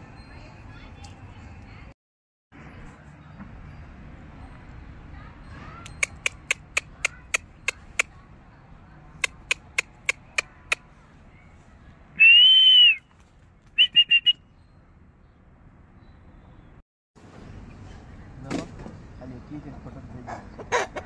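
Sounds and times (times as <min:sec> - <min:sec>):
sharp clicks: 0:05.8 - 0:07.8
short whistle pips: 0:12.2 - 0:13.1, 0:13.8 - 0:14.5
steady high whistle: 0:12.2 - 0:13.1, 0:13.8 - 0:14.4.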